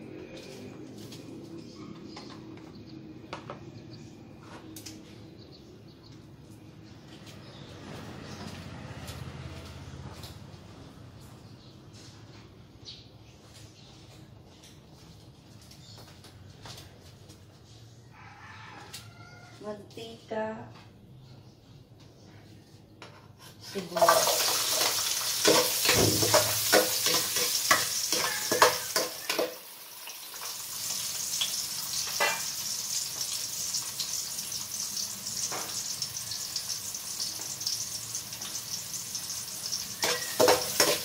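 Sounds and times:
onion sizzling in hot oil: 0:23.6 - 0:41.0
oil popping and crackling: 0:23.9 - 0:41.0.

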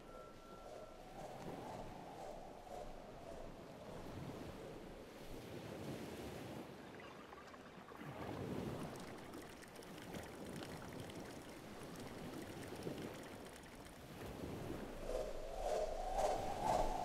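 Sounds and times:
ocean surf washing on beach: 0:03.7 - 0:17.0.

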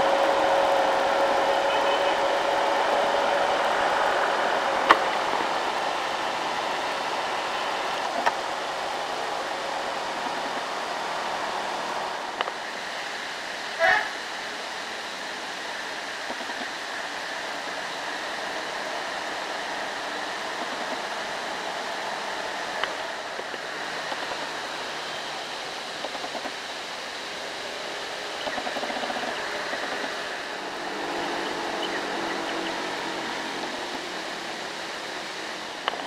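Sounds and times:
rain falling: 0:00.0 - 0:36.0.

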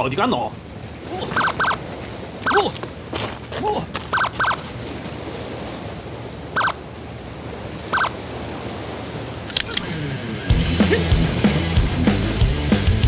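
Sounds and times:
small waves on rocky shore: 0:00.0 - 0:10.5
sharp clicks: 0:09.5 - 0:09.8.

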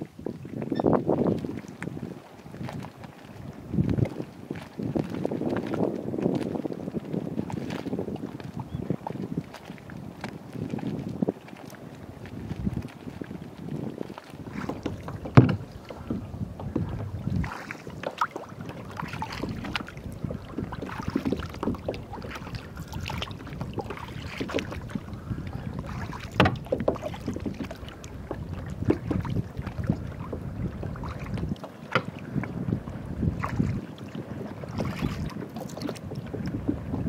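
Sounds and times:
wind on microphone: 0:00.0 - 0:37.0
paddle splashes in water: 0:00.2 - 0:37.0
water dripping and gurgling: 0:14.6 - 0:32.2.

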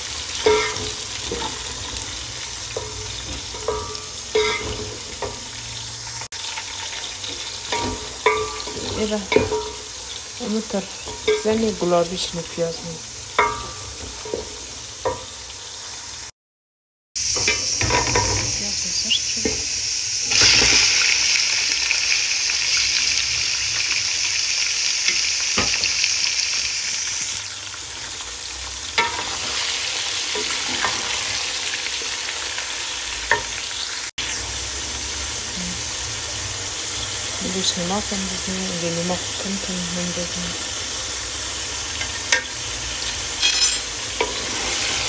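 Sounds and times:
onions and liver sizzling in oil: 0:00.0 - 0:16.3, 0:17.2 - 0:45.0.

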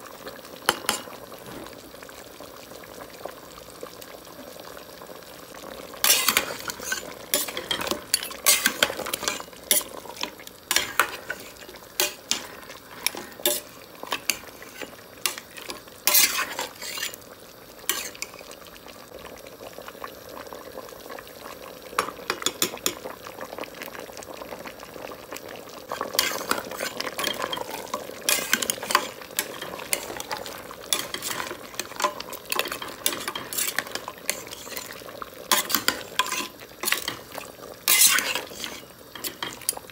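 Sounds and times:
meat sizzling: 0:00.0 - 0:39.9
spoon clinking and scraping pot: 0:06.0 - 0:17.2, 0:17.9 - 0:18.3, 0:26.1 - 0:34.9, 0:35.5 - 0:37.3, 0:37.9 - 0:39.8.

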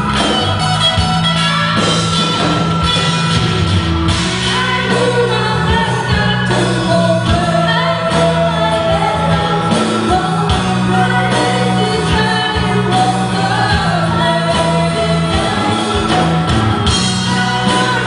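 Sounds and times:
drum kit hits: 0:00.0 - 0:08.4
electric guitars: 0:00.0 - 0:18.0
woman singing: 0:04.3 - 0:18.0.

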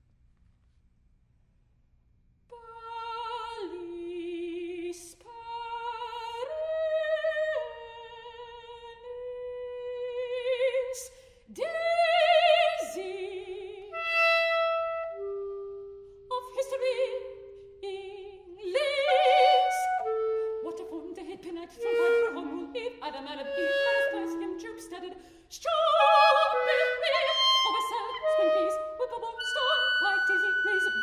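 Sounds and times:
soprano singing with vibrato: 0:02.6 - 0:31.0
clarinet playing: 0:13.9 - 0:15.9, 0:18.7 - 0:25.0, 0:25.9 - 0:31.0.

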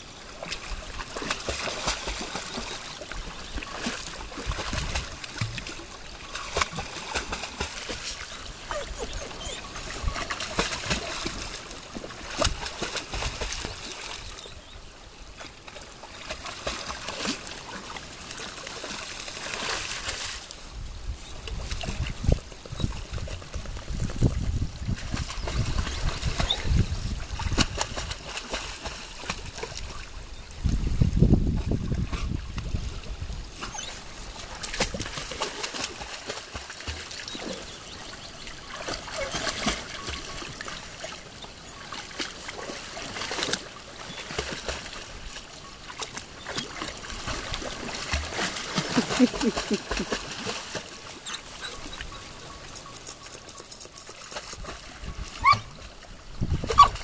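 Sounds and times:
trickling stream water: 0:00.0 - 0:57.0
dog splashing in water: 0:00.4 - 0:14.2, 0:16.2 - 0:20.4, 0:24.9 - 0:30.1, 0:33.6 - 0:45.2, 0:45.9 - 0:52.0.

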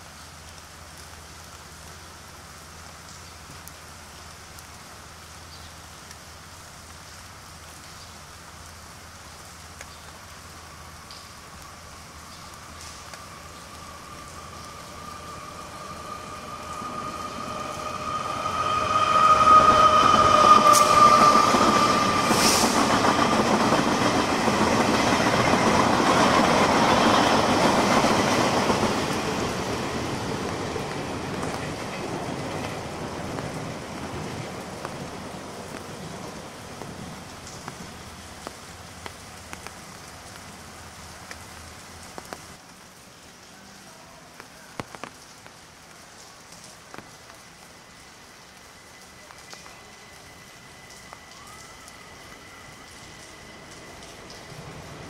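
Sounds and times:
train wheels rumbling on rails: 0:10.3 - 0:40.6, 0:47.0 - 0:55.0
train horn blast: 0:14.9 - 0:22.8.

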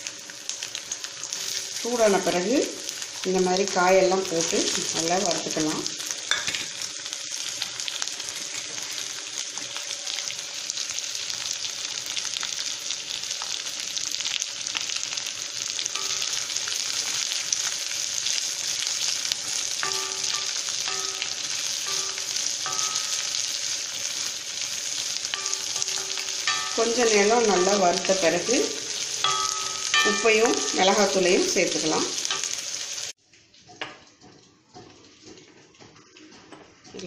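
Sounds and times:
vegetables sizzling in hot oil: 0:00.0 - 0:33.2
spatula stirring in pan: 0:15.7 - 0:31.2.

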